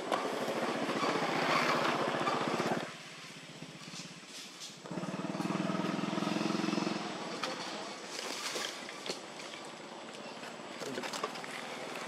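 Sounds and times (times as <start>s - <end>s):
steady engine hum: 0.0s - 8.1s
vehicle engine running: 1.3s - 7.7s.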